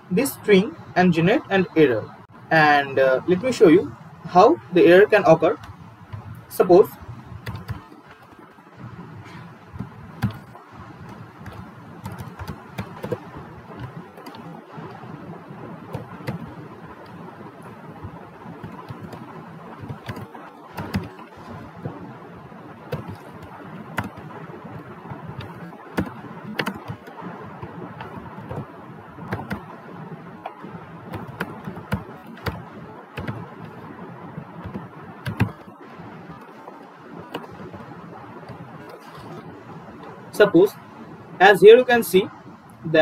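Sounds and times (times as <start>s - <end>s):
steady background noise: 0.0s - 43.0s
typing on computer keyboard: 7.4s - 8.6s, 9.7s - 14.9s, 15.9s - 21.7s, 22.9s - 29.8s, 31.1s - 33.9s, 34.6s - 35.7s, 37.3s - 39.4s.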